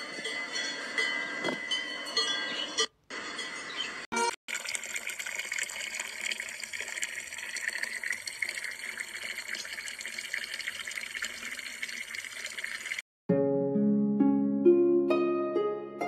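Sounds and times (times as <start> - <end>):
water pouring and splashing: 4.5 - 13.0.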